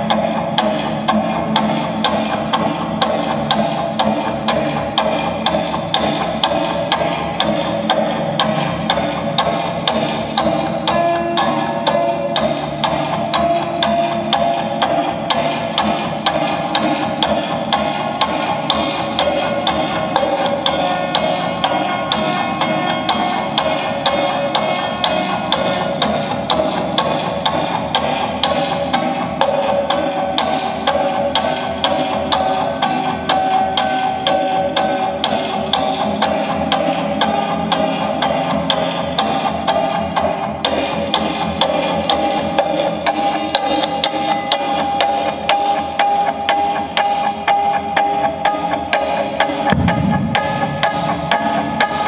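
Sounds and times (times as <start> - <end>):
low thud: 49.7 - 51.6.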